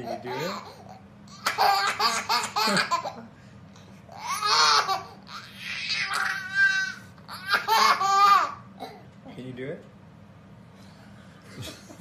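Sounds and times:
toddler laughing: 0.0 - 3.3, 4.1 - 9.0.

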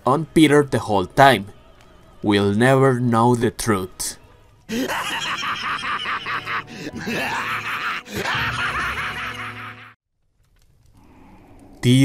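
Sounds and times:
dark music: 0.0 - 10.0
strained groaning vocal: 6.7 - 8.6.

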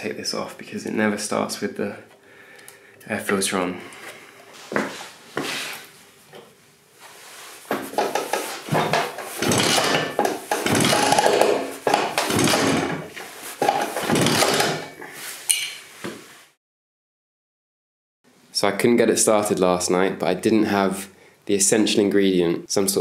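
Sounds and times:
scooter engine turning over: 7.8 - 14.9
kickstart lever clanking: 7.9 - 14.9.

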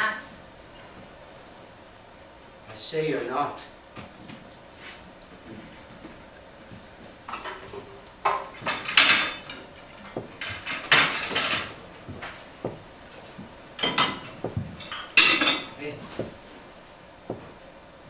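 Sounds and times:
teacups and spoons clinking: 13.8 - 16.4.

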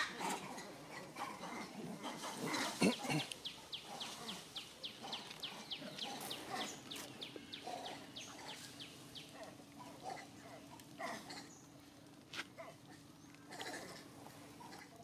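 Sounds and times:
bird chirping: 2.8 - 11.9.

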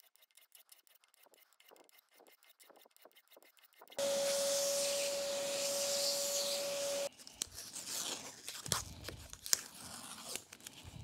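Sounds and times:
shop vacuum running: 4.0 - 7.1
masking tape peeled and crumpled: 7.0 - 11.0.

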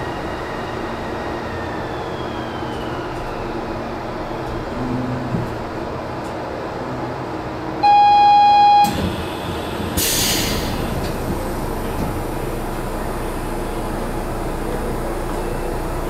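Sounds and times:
train running: 0.0 - 16.0
loud steady beep: 7.8 - 9.0
burst of hiss: 10.0 - 10.8.

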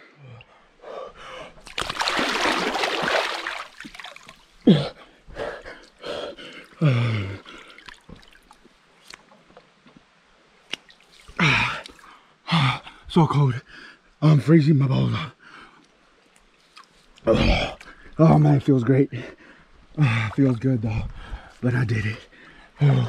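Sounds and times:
water splash: 1.6 - 4.5.

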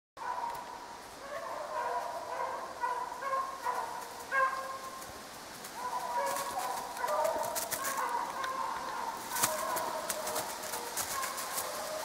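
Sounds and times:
hounds baying: 0.2 - 4.9, 5.8 - 12.0.

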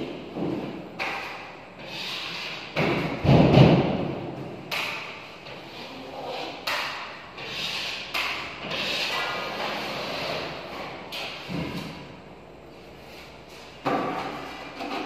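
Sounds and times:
putty knife scraping drywall: 1.0 - 3.1, 4.7 - 11.6
heavy thud: 2.8 - 4.4.

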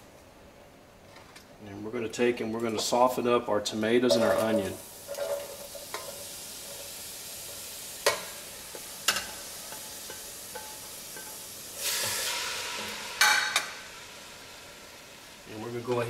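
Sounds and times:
food sizzling in pot: 3.8 - 16.0.

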